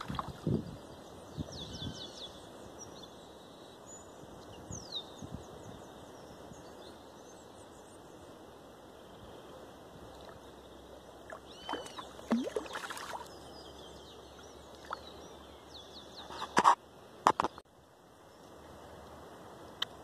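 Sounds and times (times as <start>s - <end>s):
birds chirping: 10.2s - 16.6s
fish splashing and thrashing: 11.6s - 13.3s.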